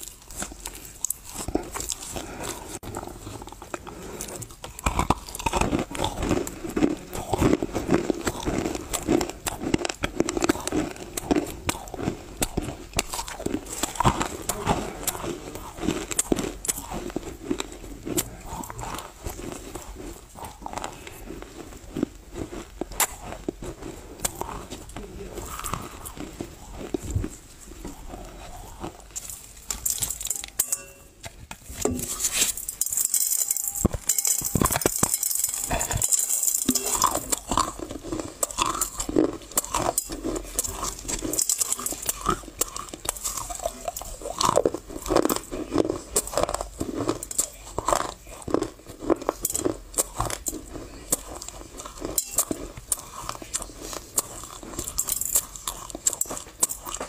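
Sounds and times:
clay being chewed: 0.0s - 57.0s
light clinks from steel bowl: 30.3s - 31.2s.

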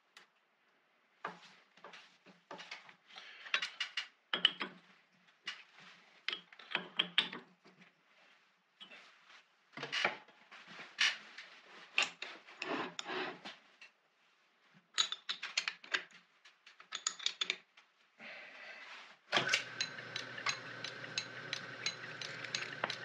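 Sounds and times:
lathe clicking: 19.4s - 23.0s
drill scraping steel: 19.6s - 23.0s.

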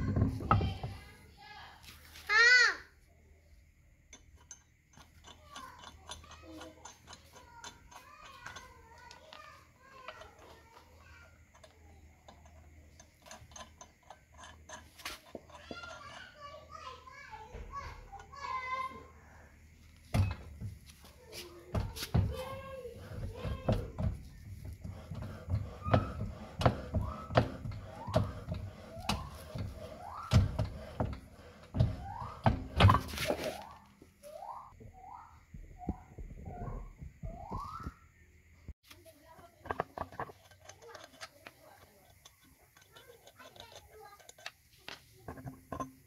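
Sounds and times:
wheel knocking and clunking: 0.0s - 1.7s, 3.9s - 46.0s
metallic clicks of wheel nuts: 4.0s - 16.5s, 39.5s - 46.0s.

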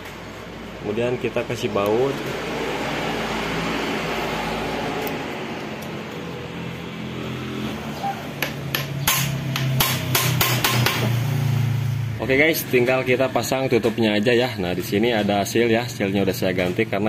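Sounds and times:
hammer striking impact driver: 8.4s - 11.2s.

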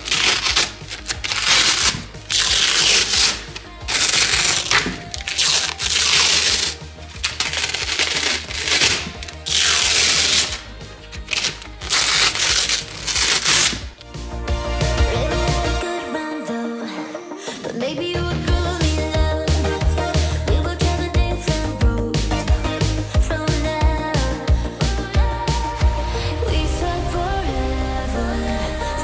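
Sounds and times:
stiff paper crinkling: 0.0s - 14.1s
background music: 0.0s - 29.0s.

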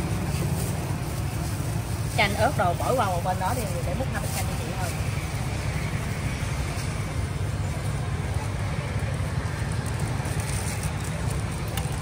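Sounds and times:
street background rumble: 0.0s - 12.0s.

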